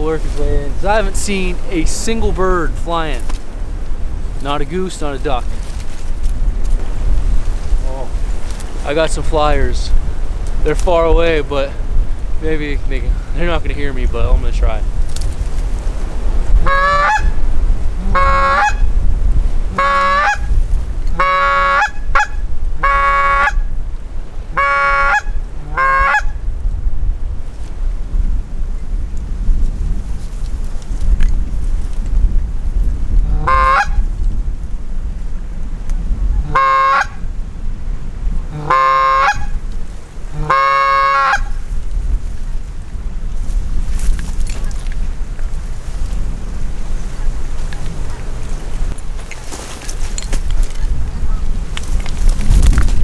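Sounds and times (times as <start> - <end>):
wind rumble on microphone: 0.0 - 53.0
goose call honks: 16.6 - 17.4, 18.0 - 18.9, 19.7 - 20.5, 21.1 - 23.7, 24.5 - 26.4, 33.2 - 34.0, 36.4 - 37.2, 38.5 - 39.6, 40.3 - 41.6.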